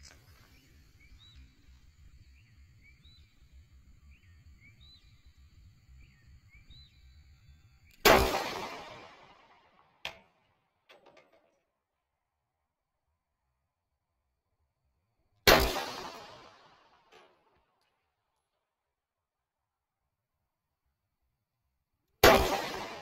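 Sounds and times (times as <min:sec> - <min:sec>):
faint chirping: 0:00.0 - 0:08.1
pistol shot echoing: 0:08.0 - 0:10.3, 0:15.5 - 0:17.4, 0:22.2 - 0:23.0.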